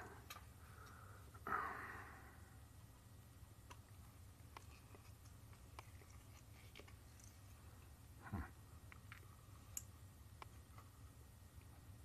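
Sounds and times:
low steady hum: 0:00.0 - 0:12.0
breathy exhale: 0:00.7 - 0:02.6.

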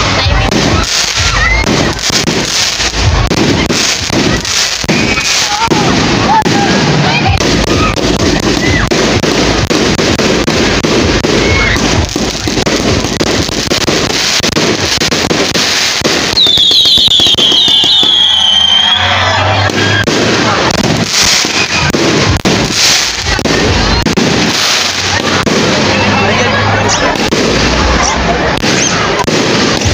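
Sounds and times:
fireworks bangs and crackling: 0:00.0 - 0:29.9
whistling shells: 0:04.8 - 0:05.4, 0:16.4 - 0:20.1, 0:21.4 - 0:21.9.

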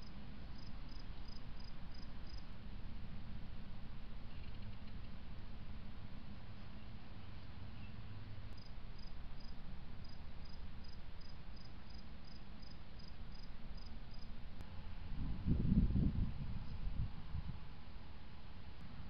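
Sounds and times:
cricket chirping: 0:00.0 - 0:02.5, 0:08.5 - 0:14.4
steady hiss and low hum: 0:00.0 - 0:19.0.

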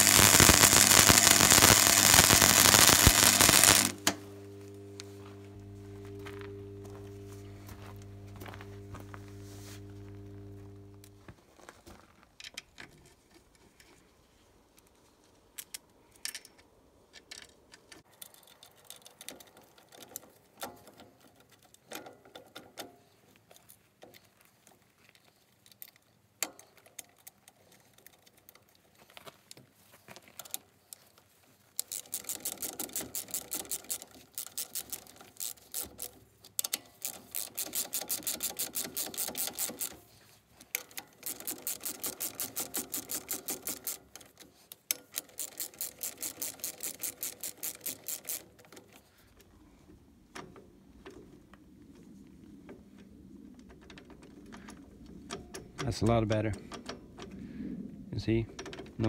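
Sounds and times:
ratchet wrench clicking: 0:31.8 - 0:39.9, 0:40.8 - 0:48.5.

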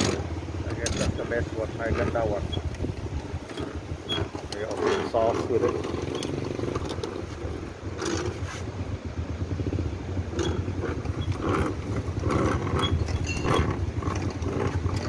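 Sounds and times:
low engine rumble: 0:00.0 - 0:15.0
voices: 0:00.6 - 0:02.7, 0:04.1 - 0:06.4.

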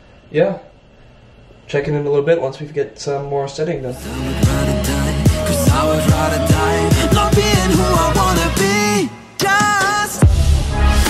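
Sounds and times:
music with heavy beat: 0:04.0 - 0:11.0.

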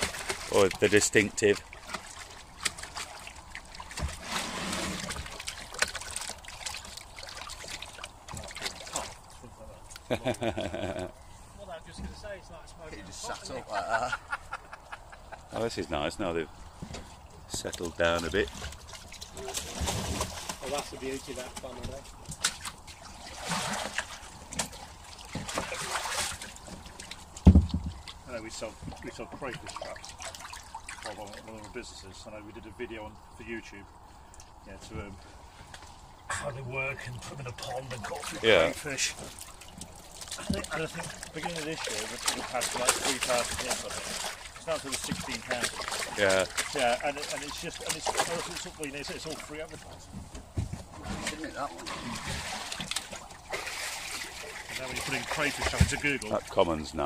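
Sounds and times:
fish thrashing in water: 0:00.0 - 0:09.5, 0:17.8 - 0:31.6, 0:37.6 - 0:56.5
water dripping: 0:05.2 - 0:10.9, 0:38.2 - 0:50.0
dull thump: 0:27.4 - 0:28.0.

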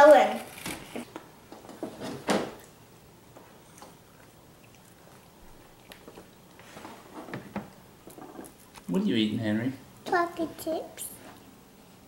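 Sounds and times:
soft clicks and squishes: 0:03.7 - 0:06.6.

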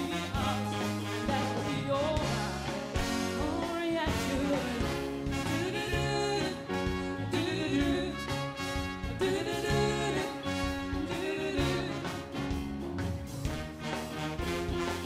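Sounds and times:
person singing: 0:00.0 - 0:08.4, 0:09.2 - 0:12.3
backing band playing: 0:00.0 - 0:15.0.

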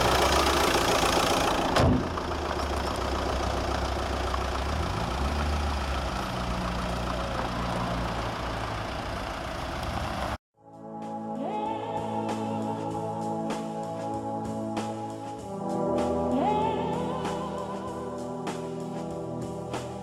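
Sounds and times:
diesel engine idling: 0:00.0 - 0:10.4.

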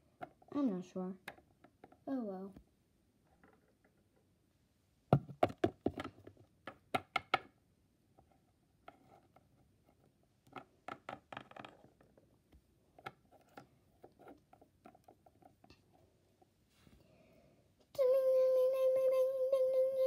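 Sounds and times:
plastic toys tapping on a table: 0:01.2 - 0:02.0, 0:05.1 - 0:07.6, 0:10.5 - 0:12.1.

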